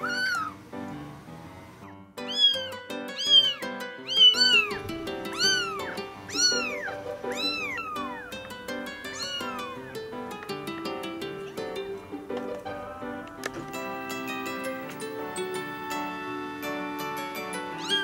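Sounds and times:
kitten mewing: 0.0 - 0.6, 2.2 - 10.0, 17.7 - 18.0.

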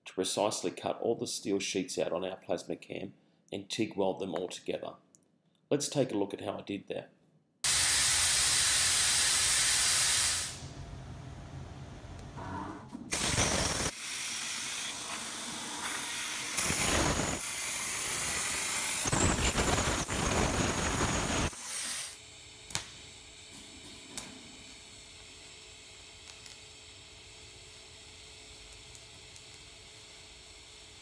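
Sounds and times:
plasma cutter hissing: 7.7 - 10.6, 13.1 - 22.2.

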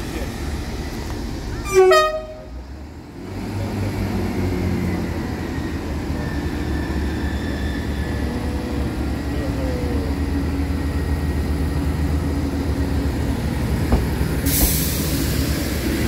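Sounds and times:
train rumbling: 0.0 - 16.0
train horn two-tone toot: 1.6 - 2.5.

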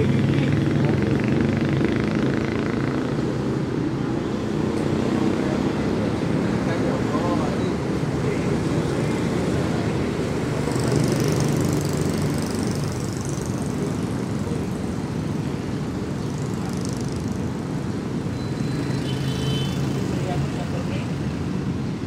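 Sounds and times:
road traffic rumble: 0.0 - 22.0.

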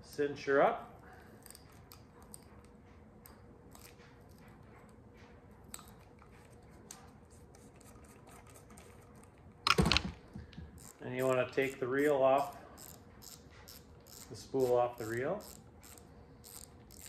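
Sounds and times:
fishing reel clicks: 10.8 - 17.0.

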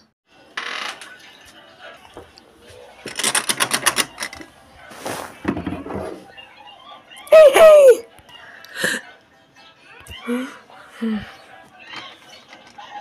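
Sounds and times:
rustling noise: 4.8 - 6.3.

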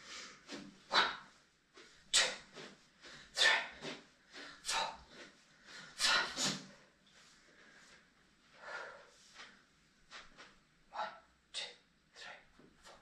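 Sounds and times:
person breathing hard: 0.0 - 9.5.

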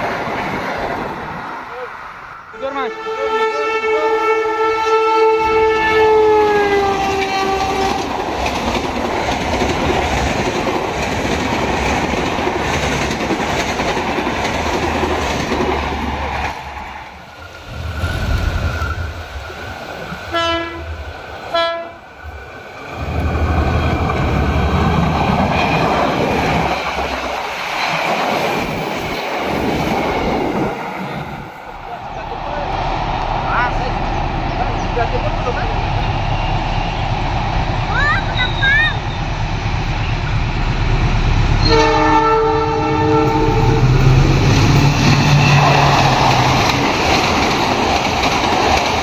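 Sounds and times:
train coaches rumbling and clattering: 0.0 - 49.0
diesel locomotive horn: 2.5 - 8.1, 20.3 - 22.0, 41.6 - 46.2.

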